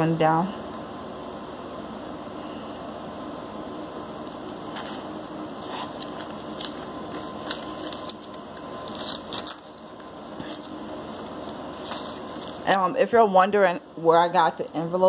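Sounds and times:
paper rustling and tapping: 0:05.9 - 0:12.6.

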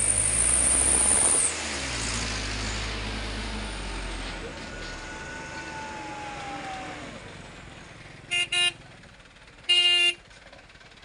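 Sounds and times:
truck engine whine: 0:00.0 - 0:11.0
truck horn toots: 0:08.3 - 0:08.8, 0:09.6 - 0:10.2.

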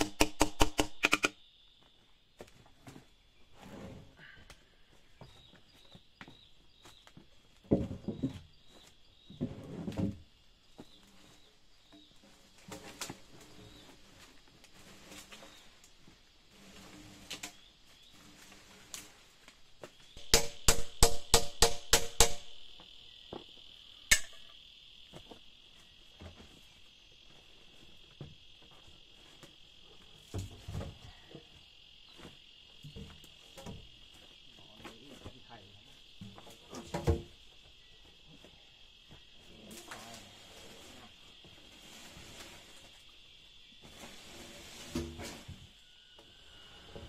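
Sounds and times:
insects chirring: 0:00.0 - 0:47.0
sharp ringing knocks: 0:20.2 - 0:22.8, 0:24.1 - 0:24.6.

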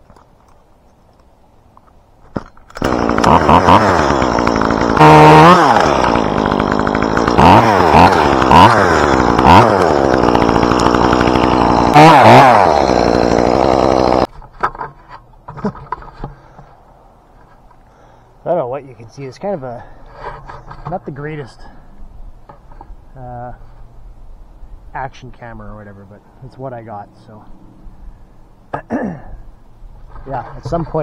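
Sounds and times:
chainsaw idling and revving: 0:02.7 - 0:14.3.

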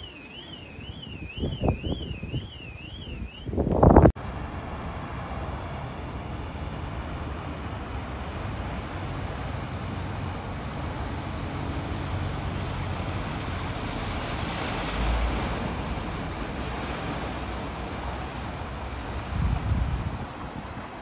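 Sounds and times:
wind buffeting microphone: 0:00.0 - 0:04.2, 0:06.1 - 0:21.0
rushing wind: 0:00.0 - 0:21.0
floodwater rushing: 0:04.2 - 0:21.0.

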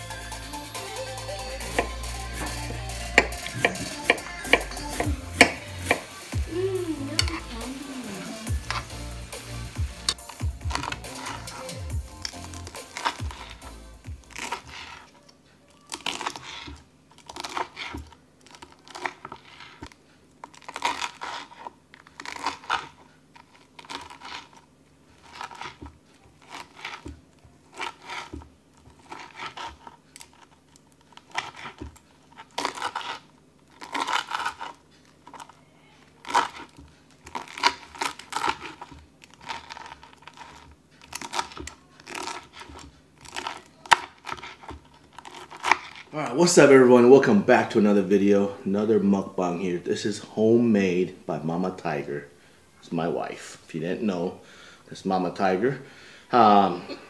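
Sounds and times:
knife slicing crispy crust: 0:01.7 - 0:06.2, 0:10.2 - 0:15.1, 0:15.8 - 0:19.9, 0:20.5 - 0:24.6, 0:25.2 - 0:35.5, 0:36.2 - 0:46.1.

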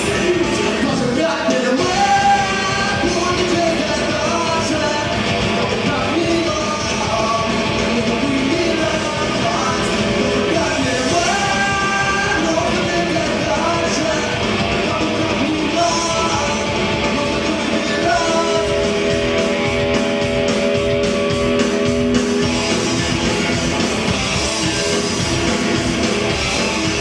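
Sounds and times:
man singing: 0:00.0 - 0:19.4
bass guitar: 0:00.0 - 0:27.0
drum kit: 0:00.0 - 0:27.0
electric guitars: 0:00.0 - 0:27.0.

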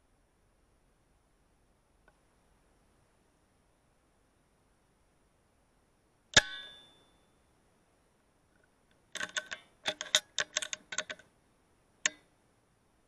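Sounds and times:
rifle action metallic clicks: 0:09.1 - 0:11.3.

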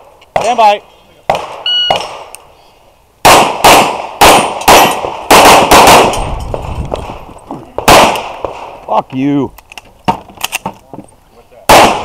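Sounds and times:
rapid pistol shots: 0:03.2 - 0:06.3, 0:07.8 - 0:08.6, 0:11.7 - 0:12.0.

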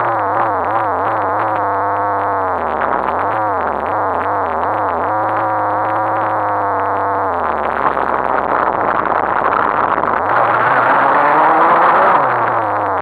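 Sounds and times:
rattling rumble over bumpy dirt: 0:00.0 - 0:11.2
muffled rc car motor: 0:00.0 - 0:13.0.

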